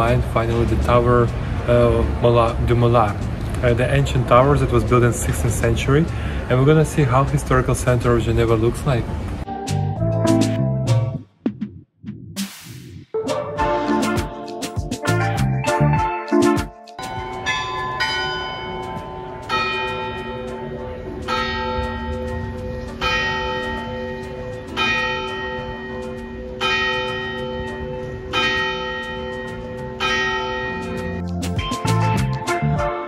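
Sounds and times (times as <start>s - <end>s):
large tower bell tolling: 17.0s - 31.2s.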